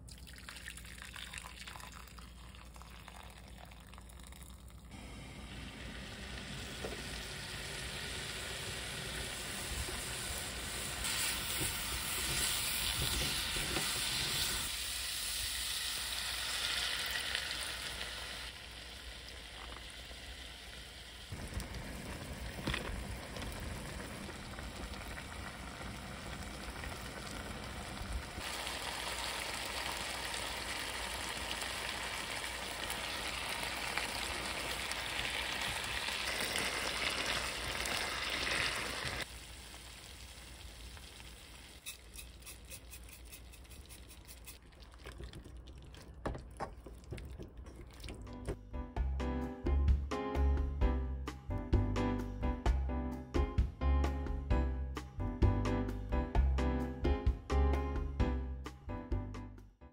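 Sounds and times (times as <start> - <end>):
potatoes sizzling in oil: 5.0 - 44.6
braising liquid bubbling: 20.9 - 48.6
spatula stirring in pot: 41.8 - 48.0.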